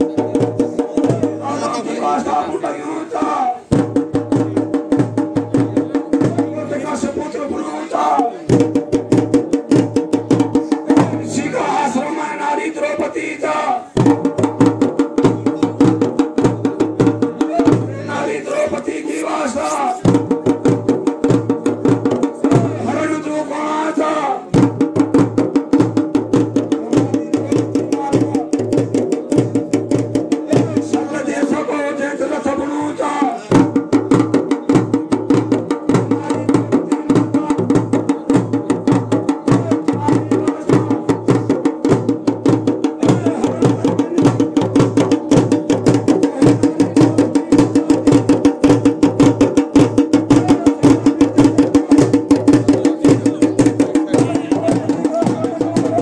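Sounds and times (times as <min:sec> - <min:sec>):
hand drum beaten fast: 0:00.0 - 0:02.6, 0:03.2 - 0:13.1, 0:13.9 - 0:23.3, 0:24.5 - 0:56.0
man singing: 0:00.0 - 0:03.7, 0:05.6 - 0:08.6, 0:10.6 - 0:14.0, 0:30.4 - 0:33.8, 0:34.8 - 0:41.7, 0:42.9 - 0:48.7, 0:50.1 - 0:56.0.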